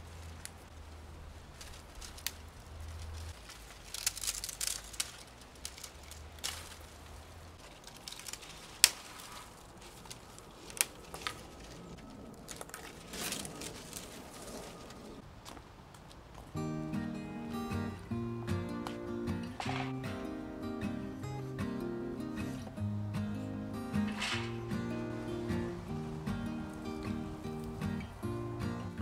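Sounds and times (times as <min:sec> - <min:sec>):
dry stems and pods crackling: 0:00.0 - 0:29.0
stalks snapping: 0:01.5 - 0:15.0, 0:18.8 - 0:20.2, 0:23.9 - 0:28.1.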